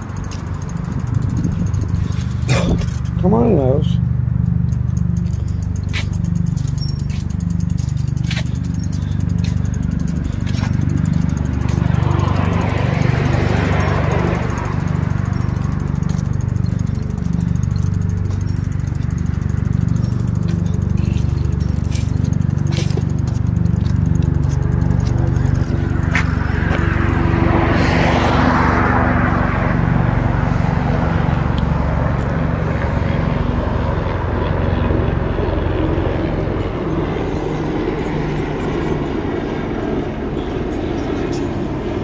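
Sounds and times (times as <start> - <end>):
bicycle rolling over pavement: 0.0 - 3.4, 4.3 - 37.4
car passing: 7.4 - 40.4.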